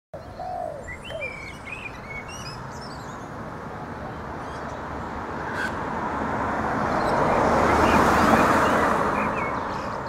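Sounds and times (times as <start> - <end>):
small birds chirping: 0.2 - 3.4.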